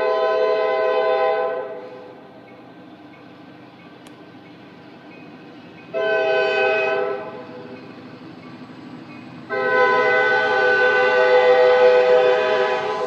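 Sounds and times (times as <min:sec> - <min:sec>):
locomotive air horn blasts: 0:00.0 - 0:02.1, 0:05.9 - 0:07.6, 0:09.5 - 0:13.0.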